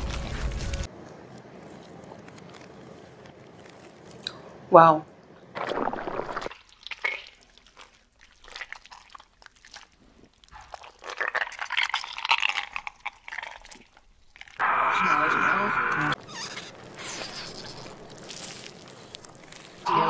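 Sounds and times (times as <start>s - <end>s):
wet chewing and slurping: 5.4s - 14.6s, 16.1s - 19.9s.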